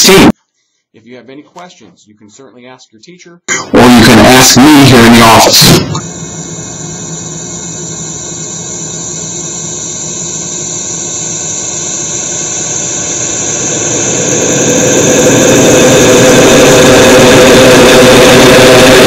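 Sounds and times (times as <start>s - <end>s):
loud roaring noise: 3.5s - 11.4s, 12.8s - 19.0s
steady tones: 3.5s - 19.0s.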